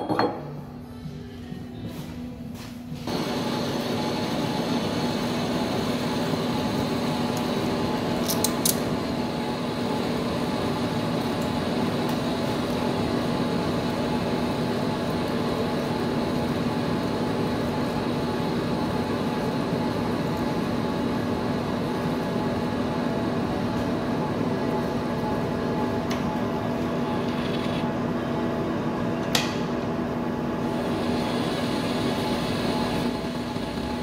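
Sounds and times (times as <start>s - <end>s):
lathe humming: 3.1s - 8.2s, 30.3s - 34.0s.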